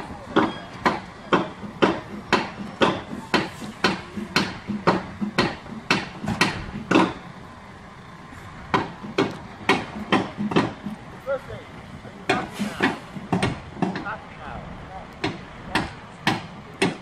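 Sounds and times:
hammer blows ringing: 0.0s - 7.2s, 8.7s - 11.0s, 12.2s - 14.2s, 15.2s - 17.0s.

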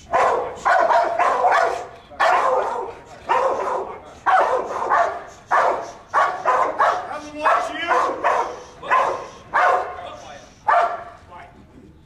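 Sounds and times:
dog barking: 0.0s - 11.2s.

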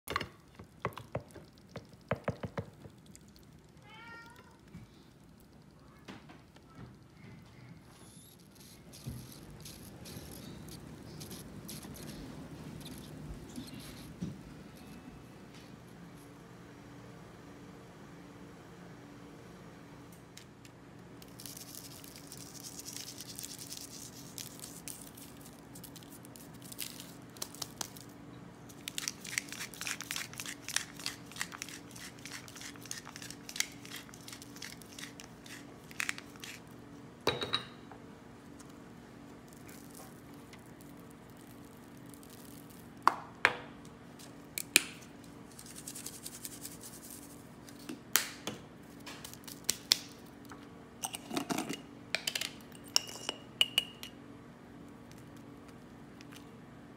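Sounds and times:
spice bottles knocking on stone: 0.8s - 2.9s.

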